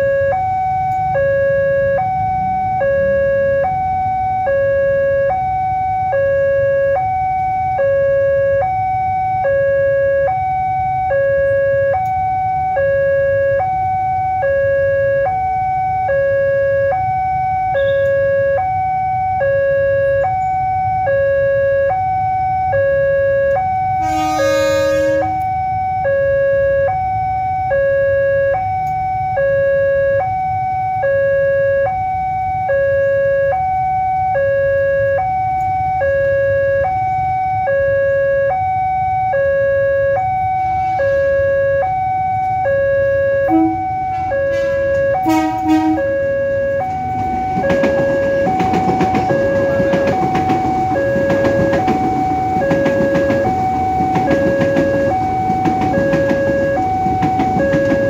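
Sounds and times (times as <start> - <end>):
motorcycle traffic rumble: 0.0 - 25.4, 32.6 - 58.0
two-tone level crossing alarm: 0.0 - 58.0
loud horn blast: 24.0 - 25.5, 40.6 - 41.5, 43.4 - 47.0.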